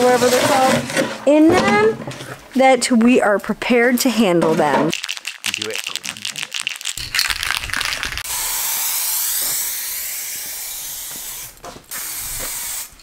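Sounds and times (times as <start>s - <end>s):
spray can mixing ball rattling: 4.9s - 8.3s
hiss of paint spraying: 8.3s - 12.9s.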